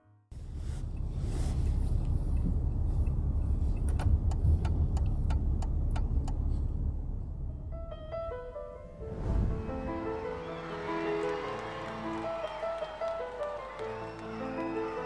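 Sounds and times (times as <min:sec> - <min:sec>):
car road and engine rumble: 0:00.3 - 0:10.0.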